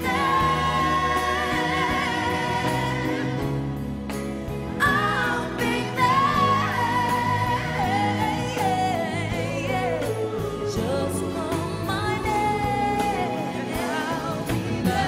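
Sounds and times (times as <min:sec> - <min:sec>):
person singing with vibrato: 0:00.0 - 0:04.0, 0:04.7 - 0:15.0
band accompaniment: 0:00.0 - 0:15.0.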